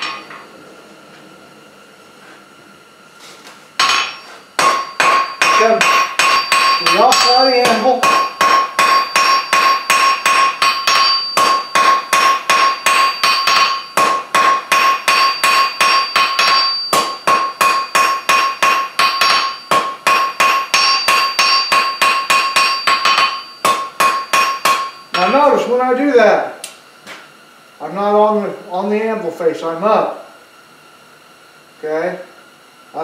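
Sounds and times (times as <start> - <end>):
anvil ringing: 0.0 - 0.4, 3.8 - 25.6
hammer striking hot metal: 0.0 - 0.5, 3.8 - 25.6.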